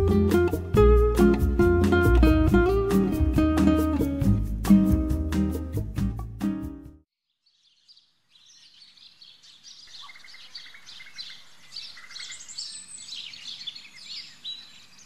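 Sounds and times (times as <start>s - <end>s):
birds chirping: 7.2s - 15.0s.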